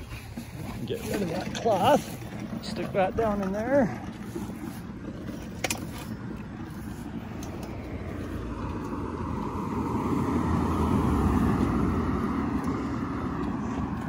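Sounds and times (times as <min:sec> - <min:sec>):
car driving past: 0:07.7 - 0:14.0.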